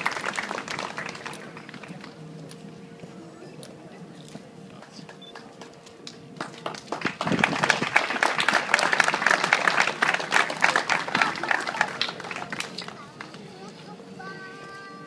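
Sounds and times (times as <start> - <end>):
audience applauding: 0.0 - 2.2, 6.4 - 13.4.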